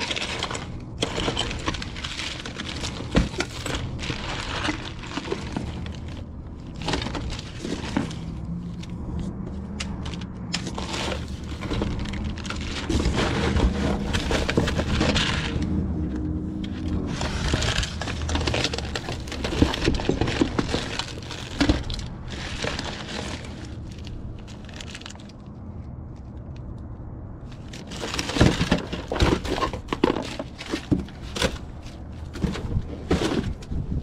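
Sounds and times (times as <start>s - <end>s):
debris crunching and clattering: 0.0s - 8.9s, 9.8s - 25.5s, 27.5s - 34.0s.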